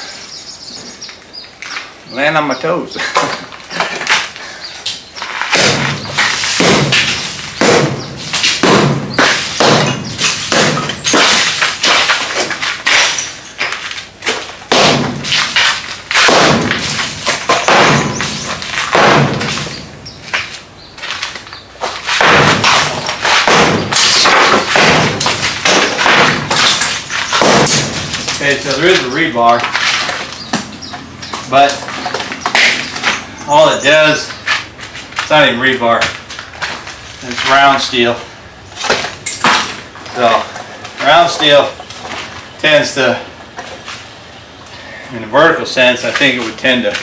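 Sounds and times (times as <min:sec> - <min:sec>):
chunks cracking and falling: 0:05.2 - 0:30.8
heavy strikes on brick wall: 0:05.5 - 0:12.6, 0:14.6 - 0:20.0, 0:21.9 - 0:29.1.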